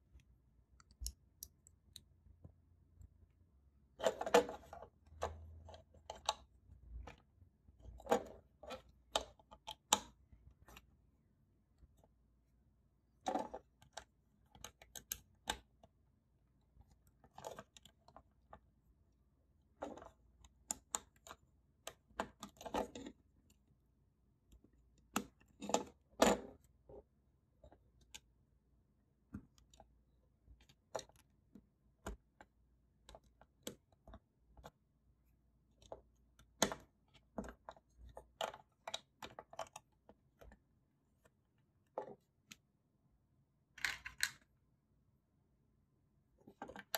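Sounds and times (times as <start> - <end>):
plastic bricks clicking and clattering: 43.8 - 44.5.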